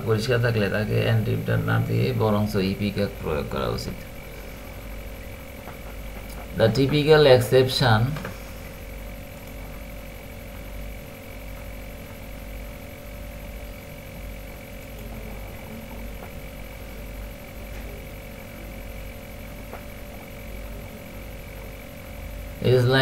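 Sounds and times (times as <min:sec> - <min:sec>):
faint high whine: 0:00.0 - 0:23.0
low rumble with electrical tones: 0:00.0 - 0:23.0.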